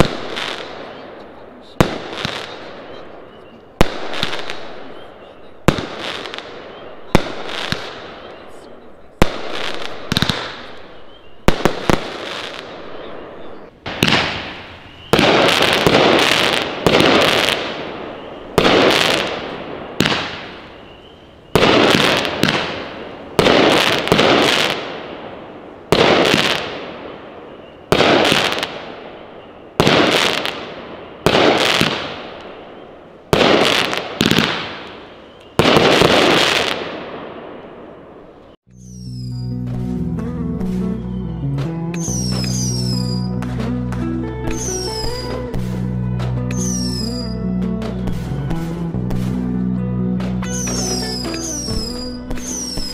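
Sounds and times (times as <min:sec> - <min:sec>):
firework shots with crackle: 0:00.0 - 0:01.0, 0:01.7 - 0:03.0, 0:03.8 - 0:05.0, 0:05.6 - 0:08.4, 0:09.2 - 0:12.9, 0:13.8 - 0:20.8, 0:21.6 - 0:27.3, 0:27.9 - 0:29.2, 0:29.8 - 0:32.6, 0:33.3 - 0:37.9, 0:50.5 - 0:52.9.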